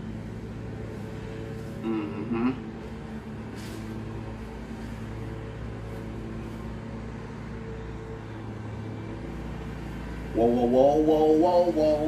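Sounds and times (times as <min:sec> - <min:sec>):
lawn mower engine running: 0:00.0 - 0:01.8, 0:02.6 - 0:12.0.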